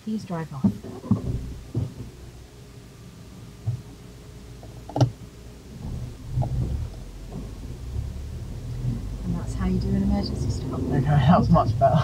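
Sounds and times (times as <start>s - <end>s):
car engine running: 0.0s - 12.0s
road rumble: 0.0s - 12.0s.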